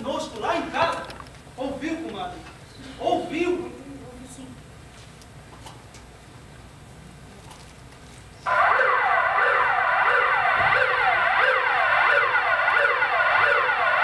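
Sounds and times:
siren-like wailing: 0:08.5 - 0:14.0.

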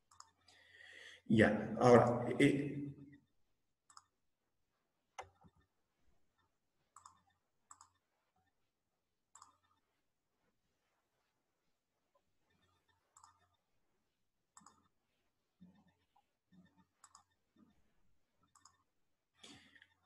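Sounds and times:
computer mouse and keyboard clicks: 0:00.0 - 0:00.6, 0:03.9 - 0:04.2, 0:05.2 - 0:05.7, 0:06.4 - 0:08.1, 0:09.3 - 0:09.8, 0:12.5 - 0:13.6, 0:14.5 - 0:15.0, 0:15.7 - 0:17.7, 0:18.4 - 0:18.9.

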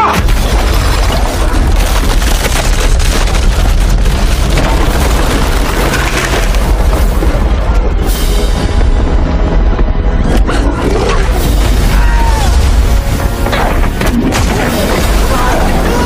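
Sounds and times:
booming impacts and crashes: 0:00.0 - 0:16.0
heavy low rumble: 0:00.2 - 0:16.0.

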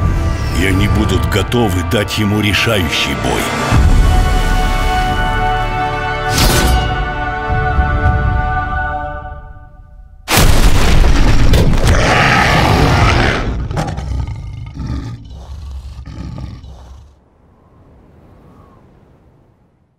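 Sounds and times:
deep rough roar: 0:11.7 - 0:17.2.

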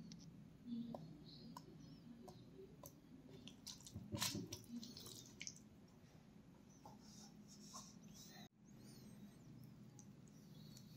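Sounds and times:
wet squishing of paste: 0:02.8 - 0:06.0.

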